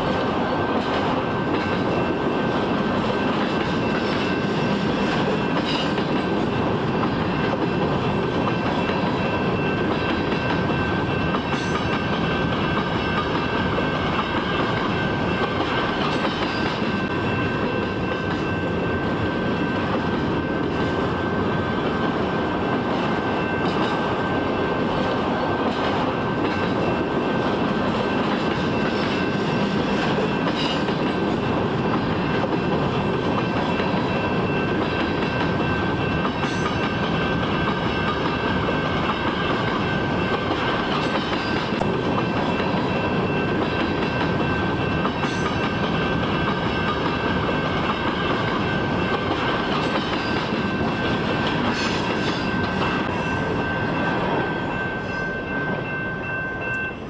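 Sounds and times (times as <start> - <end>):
freight train wheels rumbling on rails: 0.0 - 57.0.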